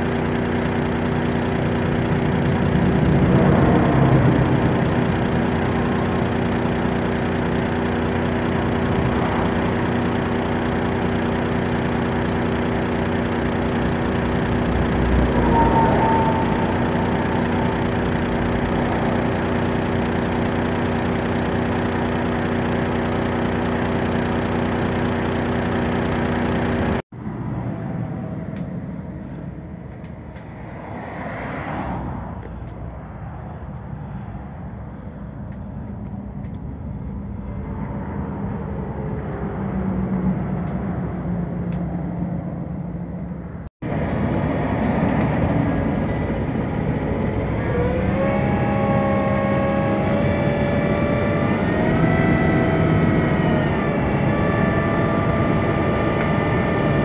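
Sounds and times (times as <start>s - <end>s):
diesel truck engine idling: 0.0s - 29.8s, 42.5s - 57.0s
motorway traffic passing: 0.0s - 57.0s
vehicle sweeping by: 14.2s - 19.7s, 30.5s - 32.4s.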